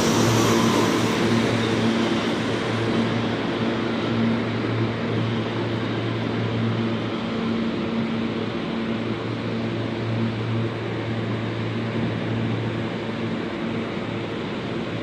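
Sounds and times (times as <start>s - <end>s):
wheels rushing on rail: 0.0s - 5.6s.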